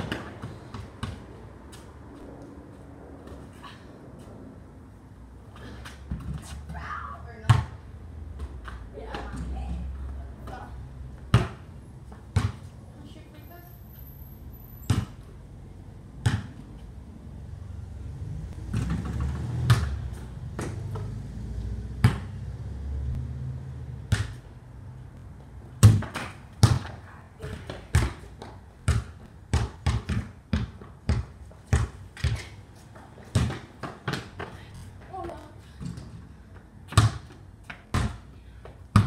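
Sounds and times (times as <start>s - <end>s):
basketball bouncing on concrete: 0.0s - 1.9s, 5.6s - 12.7s, 14.8s - 15.3s, 16.2s - 16.8s, 18.6s - 21.2s, 22.0s - 22.4s, 24.1s - 24.5s, 25.8s - 39.0s.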